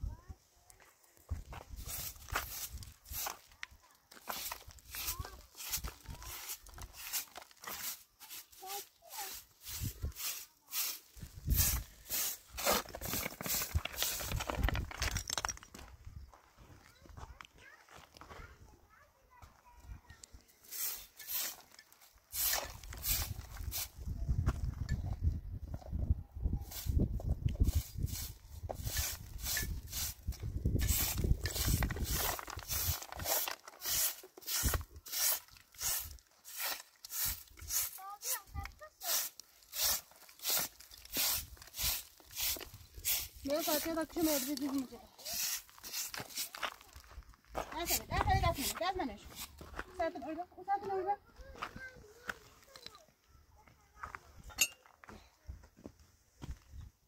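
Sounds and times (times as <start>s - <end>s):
straw broom sweeping: 1.6s - 14.6s, 20.6s - 24.0s, 26.6s - 47.0s, 47.8s - 49.7s.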